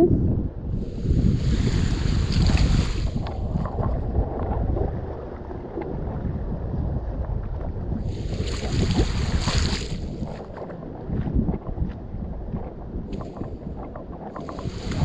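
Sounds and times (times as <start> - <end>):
wind buffeting microphone: 0.0 - 15.0
sea waves: 0.8 - 3.7, 14.2 - 15.0.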